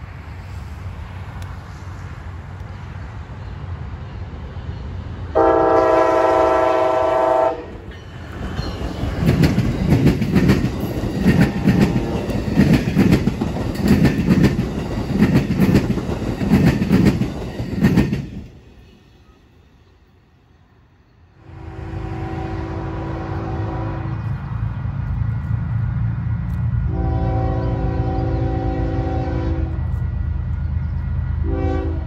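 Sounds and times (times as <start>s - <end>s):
train rumbling past: 0.0s - 32.0s
train horn blast: 5.4s - 7.9s, 21.4s - 24.4s, 26.8s - 30.0s, 31.4s - 32.0s
wheels clacking over rail joints: 7.7s - 19.1s.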